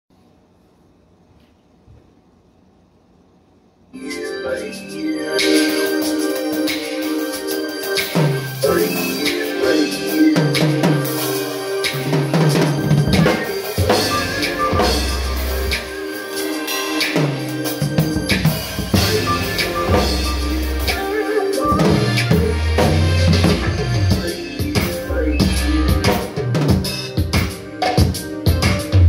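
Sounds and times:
recorded song with deep bass: 0:04.0 - 0:29.0
drum kit played with sticks: 0:05.4 - 0:29.0.

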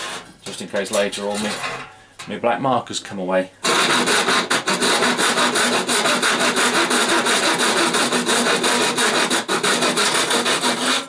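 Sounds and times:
hand saw cutting sheet metal: 0:00.0 - 0:00.6, 0:01.2 - 0:01.8, 0:03.6 - 0:11.0.

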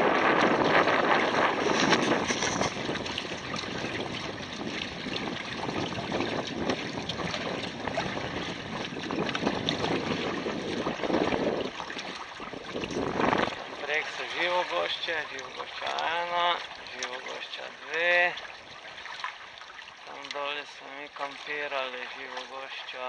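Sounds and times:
wind on microphone: 0:00.0 - 0:16.9
water washing past hulls: 0:00.0 - 0:23.0.

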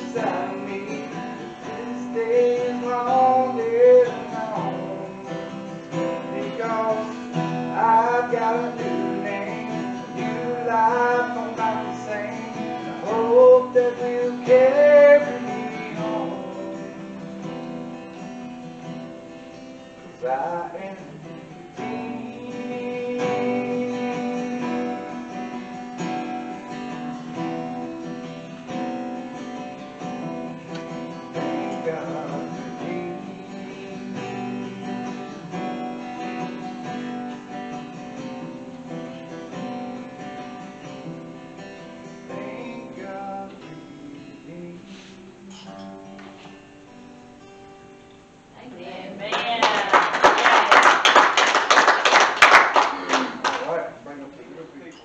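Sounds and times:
man singing: 0:00.0 - 0:18.0, 0:20.0 - 0:27.8, 0:31.2 - 0:36.9, 0:41.8 - 0:46.6
acoustic guitar strumming chords: 0:00.0 - 0:55.0.

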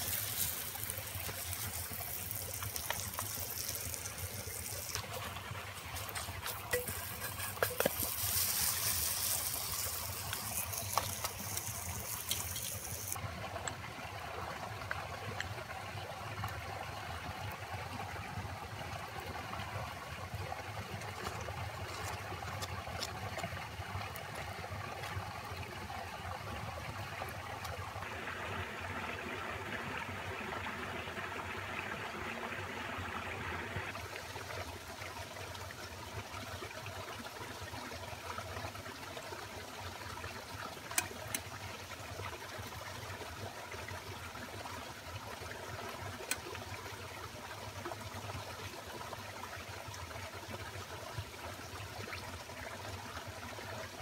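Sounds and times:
flatbread sizzling in a skillet: 0:00.0 - 0:13.2
stream running water: 0:00.0 - 0:54.0.

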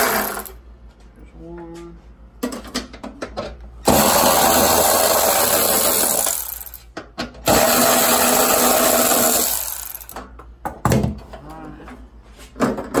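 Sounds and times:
electric ratchet spinning nuts: 0:00.0 - 0:00.6, 0:03.9 - 0:06.8, 0:07.4 - 0:10.2.

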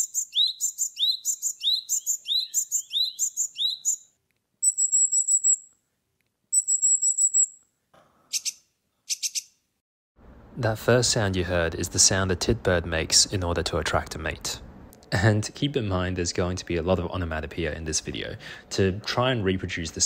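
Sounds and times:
harsh buzzy bird calls: 0:00.0 - 0:05.6
high rapid bird trills: 0:00.0 - 0:05.7, 0:06.6 - 0:07.6, 0:08.3 - 0:09.6.

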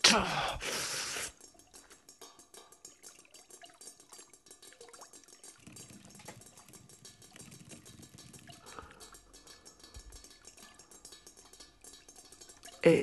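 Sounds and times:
typing on laptop keyboard: 0:02.8 - 0:12.8.

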